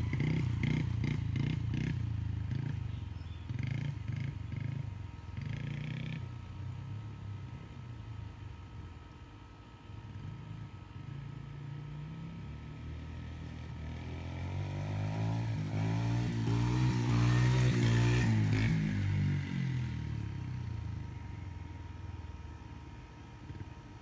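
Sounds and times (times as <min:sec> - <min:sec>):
dirt bike engine revving: 0:00.0 - 0:07.8, 0:11.2 - 0:21.4.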